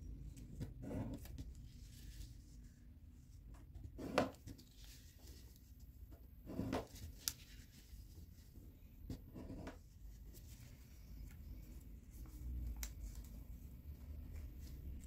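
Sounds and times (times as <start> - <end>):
paper rustling and creasing: 4.3 - 5.9.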